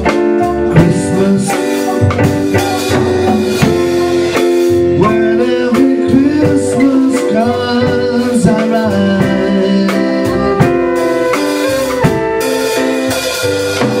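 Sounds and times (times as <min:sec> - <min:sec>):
flute: 0:00.0 - 0:05.2, 0:09.8 - 0:14.0
person singing: 0:00.0 - 0:12.8
drum kit with cymbals: 0:00.0 - 0:14.0
keyboard: 0:00.0 - 0:14.0.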